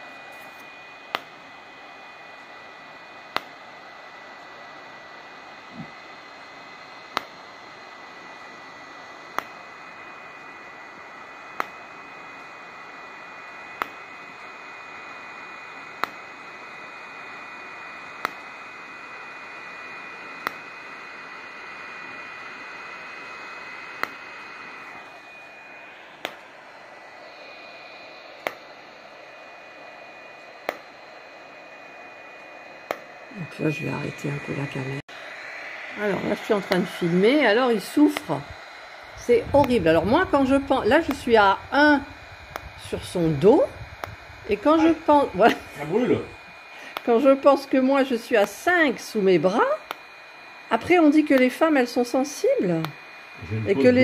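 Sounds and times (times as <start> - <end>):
cooling fan whirring: 0.0 - 54.0
faint high whine: 0.0 - 54.0
device flash clicks: 0.3 - 1.4, 3.3 - 3.6, 7.0 - 7.5, 9.1 - 9.8, 11.5 - 12.4, 13.7 - 14.3, 15.9 - 16.4, 18.1 - 18.6, 20.2 - 20.8, 22.4 - 24.8, 26.1 - 26.6, 28.3 - 28.8, 30.4 - 31.0, 32.4 - 33.1, 36.6 - 36.9, 41.0 - 42.8, 43.8 - 45.0, 46.9 - 47.2, 48.3 - 48.7, 49.8 - 50.3, 52.8 - 53.4.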